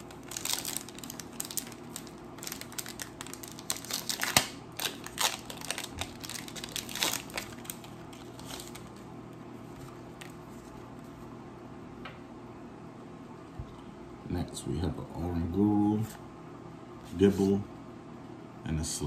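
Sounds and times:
foil wrapper crinkling: 0.0 - 9.0.

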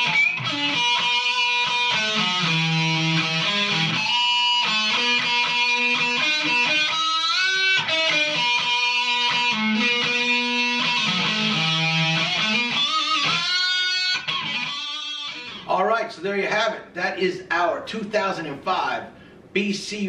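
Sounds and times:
distorted electric guitar chords: 0.0 - 15.7.

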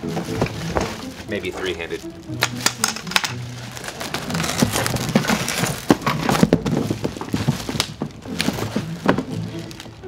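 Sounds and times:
plastic wrapping crinkling: 0.2 - 10.0
cardboard box scraping and knocking: 4.1 - 9.8.

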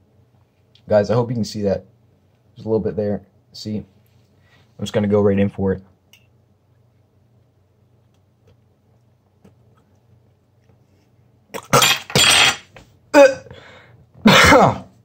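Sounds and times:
faint hum: 0.0 - 15.0
person gagging: 13.2 - 13.5, 14.3 - 14.9.

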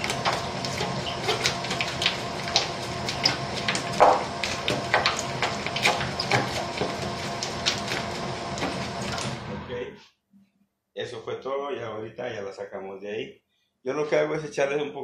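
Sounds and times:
dough slapping and popping: 0.0 - 9.4
mixer motor humming: 0.0 - 9.7.

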